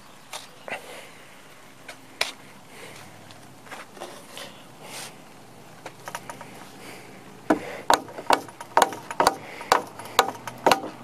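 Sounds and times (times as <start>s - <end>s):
sharp knocks on wood: 7.5s - 11.0s.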